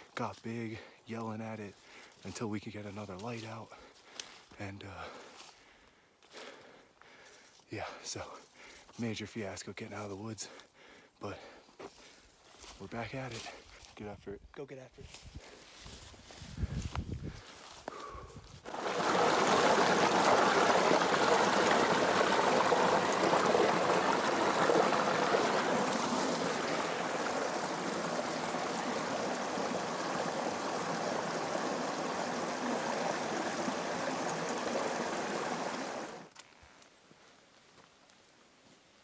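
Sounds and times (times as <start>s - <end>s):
creek running over rocks: 18.6s - 36.4s.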